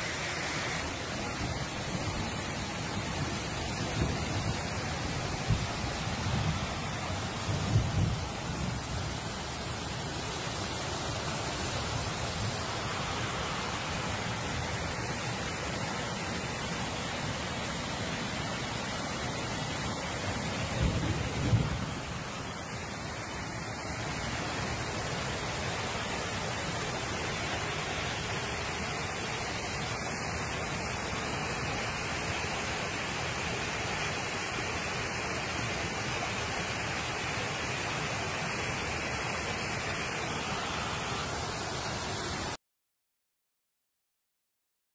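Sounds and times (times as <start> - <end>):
floodwater rushing: 0.0 - 42.6.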